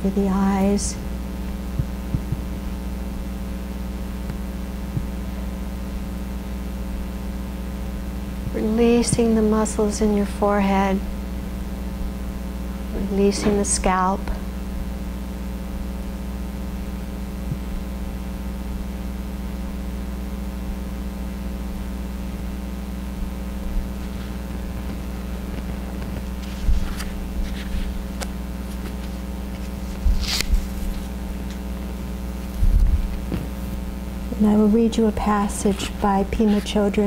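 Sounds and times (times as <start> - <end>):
low room hum: 0.0 - 37.0
faint rustles: 23.2 - 31.7.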